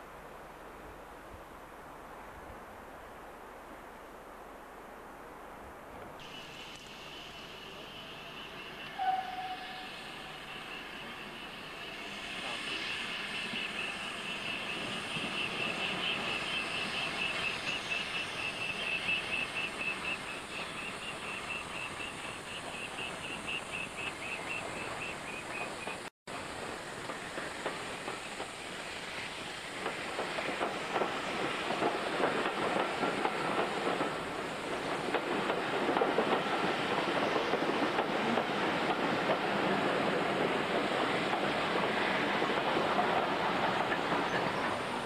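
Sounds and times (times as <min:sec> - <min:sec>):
steam train passing: 0:06.1 - 0:45.0
high pulsing squeal: 0:06.2 - 0:25.2
wheels clicking over rail joints: 0:29.8 - 0:45.0.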